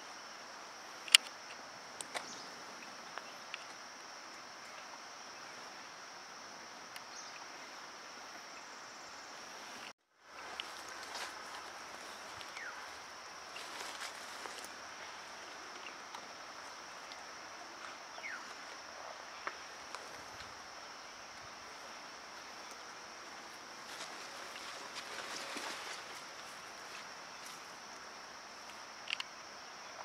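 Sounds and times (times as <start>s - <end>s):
insects droning: 0.0s - 30.0s
light clicks and snaps: 1.0s - 2.3s, 28.6s - 29.3s.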